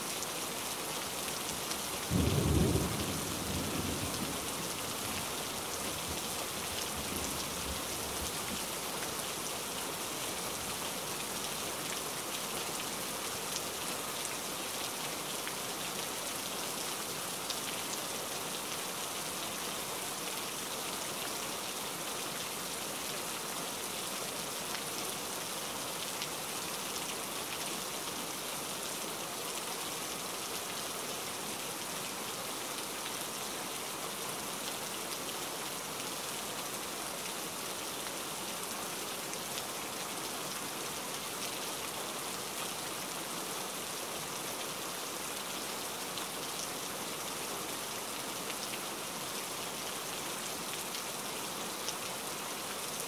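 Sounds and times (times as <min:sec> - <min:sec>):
steady rain hiss: 0:00.0 - 0:53.0.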